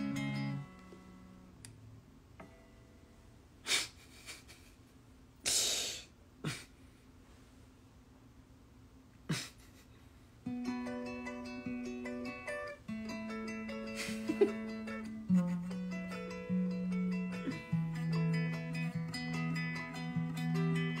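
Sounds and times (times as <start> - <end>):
faint guitar string notes: 0.0 - 1.8, 10.5 - 21.0
person breathing and sniffing: 5.4 - 7.0.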